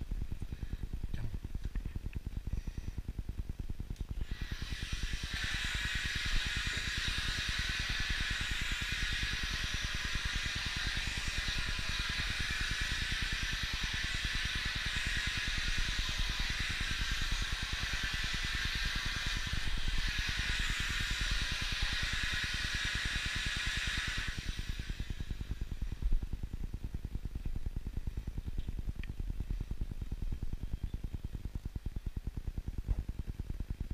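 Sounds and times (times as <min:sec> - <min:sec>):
vacuum cleaner sucking air: 0:04.2 - 0:26.2.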